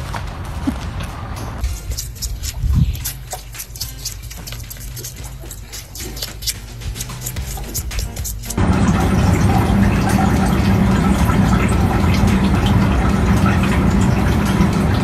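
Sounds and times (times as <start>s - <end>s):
toilet flushing: 8.5s - 15.0s.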